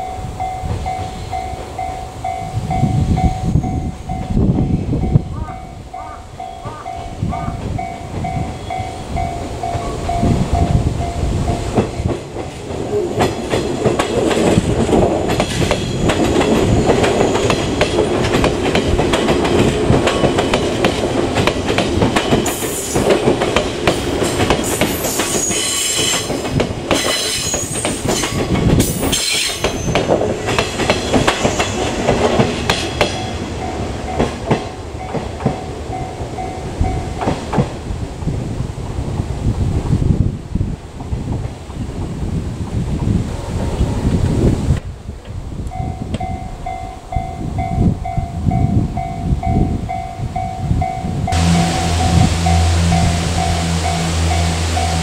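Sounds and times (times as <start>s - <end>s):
level-crossing bell dinging: 0.0s - 11.6s, 45.8s - 55.0s
train wheels clacking over joints: 11.5s - 33.4s
train wheels screeching: 15.4s - 18.0s, 22.2s - 23.2s, 24.0s - 33.4s.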